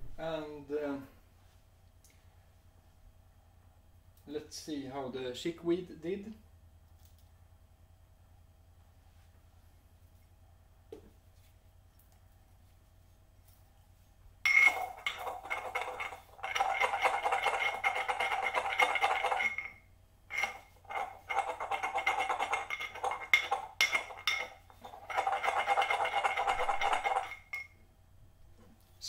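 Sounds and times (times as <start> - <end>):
pestle scraping in mortar: 14.5 - 27.7.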